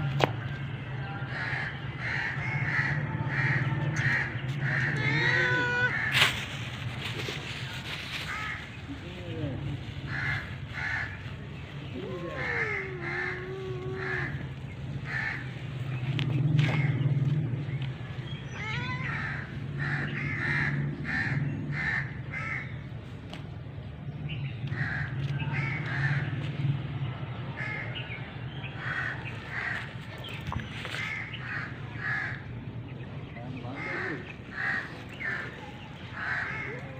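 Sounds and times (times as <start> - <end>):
crows cawing: 1.3 - 6.6, 8.1 - 8.7, 10.0 - 11.3, 12.2 - 15.6, 16.6 - 17.2, 18.5 - 22.8, 24.7 - 26.4, 27.6 - 28.0, 28.8 - 29.9, 30.8 - 32.5, 33.7 - 36.9.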